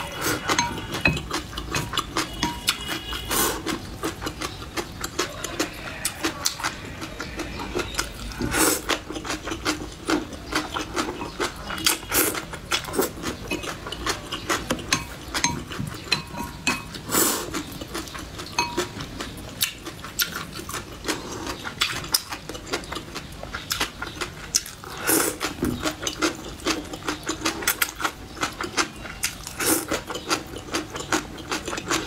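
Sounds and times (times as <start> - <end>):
slurping noodles: 0.0 - 4.4, 5.6 - 9.9, 16.9 - 17.7, 29.2 - 30.0
wet chewing: 0.0 - 32.0.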